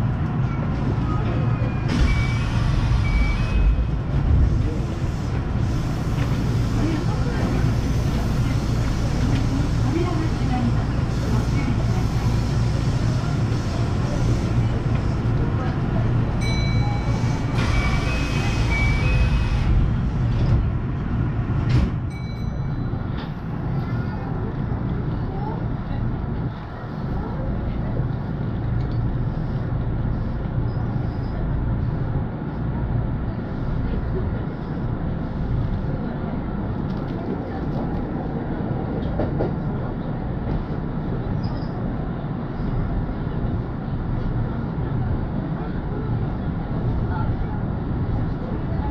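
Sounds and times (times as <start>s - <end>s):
train equipment low hum: 0.0s - 48.9s
short electronic beeps: 2.0s - 3.8s.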